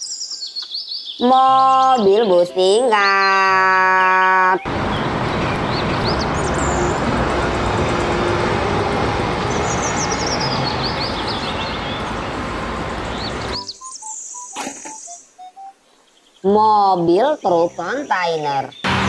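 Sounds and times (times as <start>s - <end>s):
birds chirping: 0.0s - 19.0s
bus driving along road: 4.0s - 13.6s, 18.8s - 19.0s.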